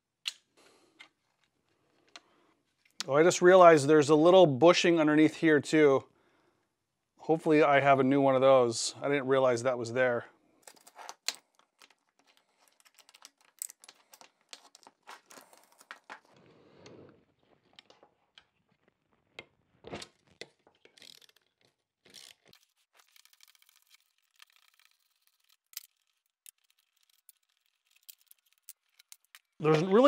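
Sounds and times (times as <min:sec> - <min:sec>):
metal parts clinking: 0:10.6 - 0:16.1, 0:20.8 - 0:30.0.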